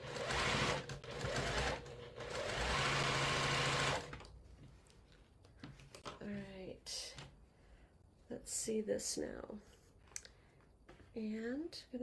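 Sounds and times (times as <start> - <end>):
sewing machine stitching: 0.0 - 4.2.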